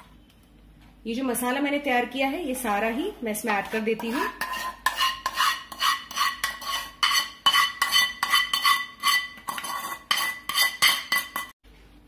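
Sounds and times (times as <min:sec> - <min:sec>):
steel spoon scraping metal pan: 0:02.7 - 0:11.6.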